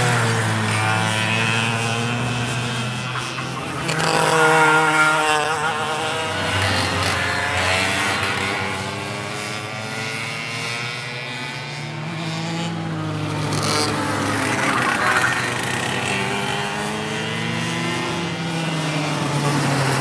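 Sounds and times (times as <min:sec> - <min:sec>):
go-kart engines passing: 0:00.0 - 0:20.0.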